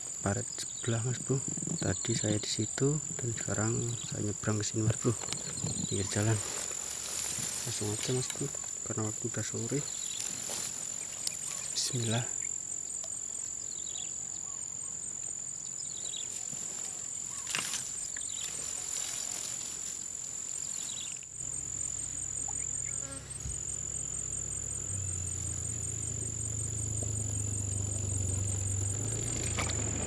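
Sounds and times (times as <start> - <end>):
faint chirps: 0.0 - 30.0
high-pitched insect drone: 0.0 - 30.0
vehicle engine hum: 21.4 - 30.0.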